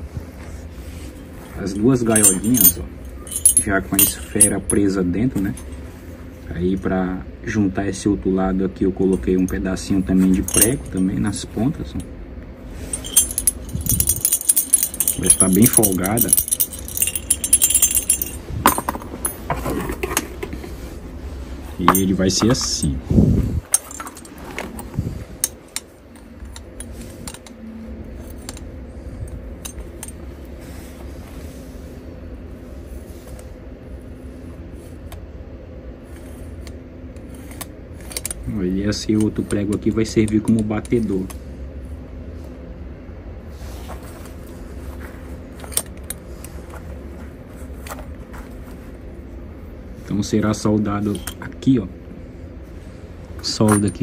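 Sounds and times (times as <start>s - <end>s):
steady low hum: 0.0s - 54.0s
light metallic clicks and clinks: 2.1s - 5.8s, 12.9s - 19.4s.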